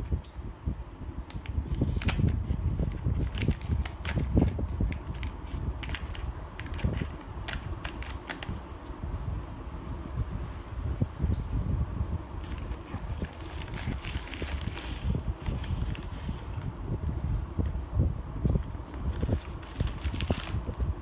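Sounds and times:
packaging crackles and clicks: 1.3 - 8.9, 12.4 - 16.6, 18.9 - 20.8.

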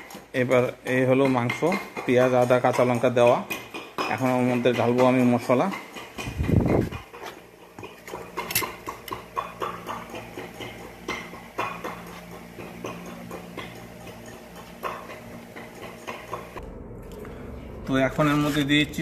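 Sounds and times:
steady low hum: 6.2 - 19.0
kitchen utensils clicking: 7.8 - 11.9.

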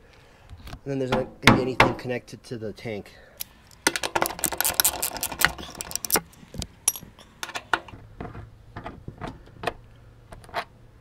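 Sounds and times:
socket wrench clicking: 3.4 - 6.3.

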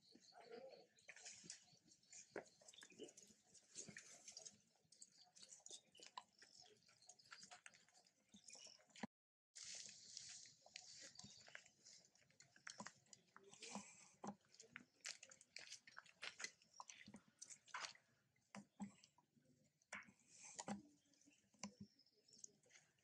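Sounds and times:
dry leaf litter crackling: 9.6 - 12.0.

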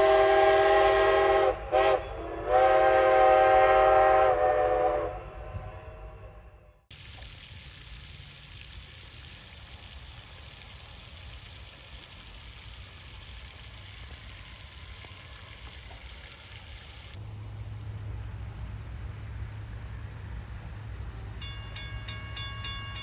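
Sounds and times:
fountain water splashing: 6.9 - 19.8.

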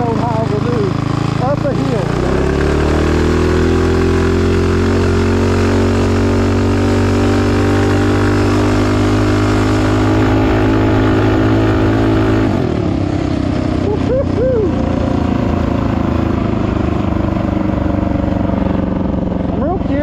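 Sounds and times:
single-cylinder engine under throttle: 0.0 - 20.0.

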